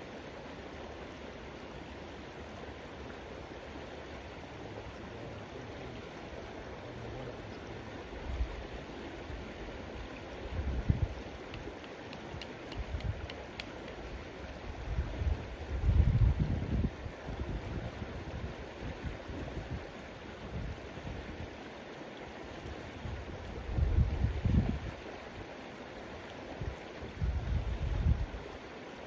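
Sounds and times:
river flowing: 0:00.0 - 0:29.0
wind buffeting microphone: 0:10.5 - 0:11.2, 0:14.7 - 0:19.9, 0:23.1 - 0:25.0, 0:26.6 - 0:28.4
faint ticks: 0:11.4 - 0:14.2.

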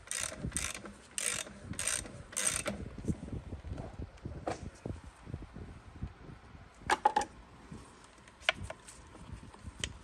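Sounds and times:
sharp clicks of plastic engine parts: 0:00.0 - 0:02.8.

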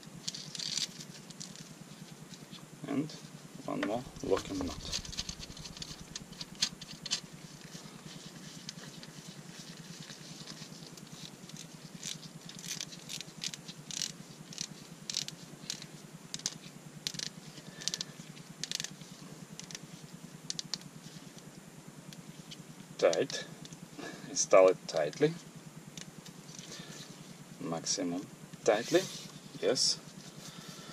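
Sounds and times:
nut screwing clicks and rustles: 0:00.2 - 0:02.6, 0:04.2 - 0:20.8.

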